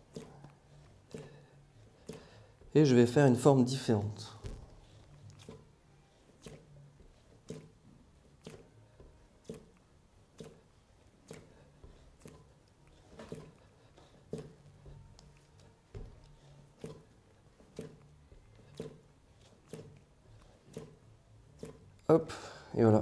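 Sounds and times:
clay thudding on slab: 4.4 - 4.8.

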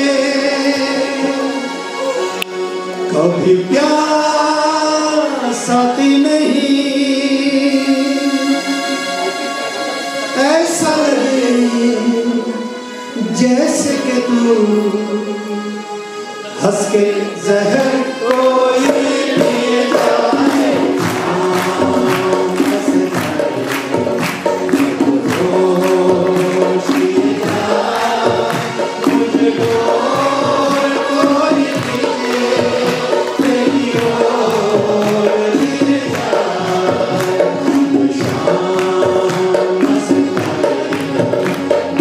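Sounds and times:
harmonium: 0.0 - 42.0
keyboard: 0.0 - 42.0
hand drums beating: 18.3 - 42.0.

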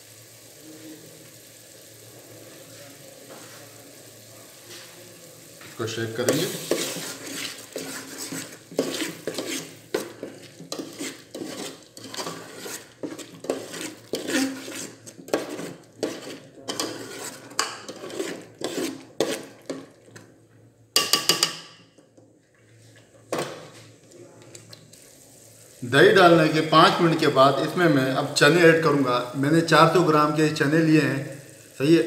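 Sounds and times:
metal ladle stirring in pot: 6.2 - 20.3.

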